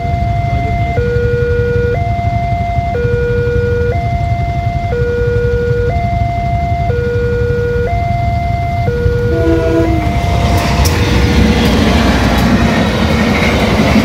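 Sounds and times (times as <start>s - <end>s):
level crossing two-tone alarm: 0.0s - 10.3s
steady low rumble: 8.4s - 14.0s.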